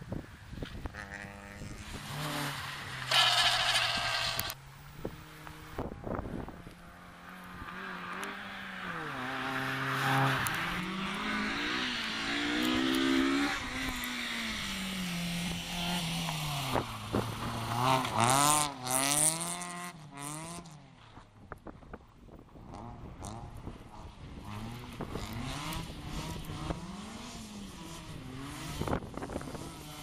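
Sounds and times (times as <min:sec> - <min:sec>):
rally car engines accelerating: 0:00.9 - 0:20.8
gravel hissing under tyres: 0:01.8 - 0:04.6, 0:11.9 - 0:18.6.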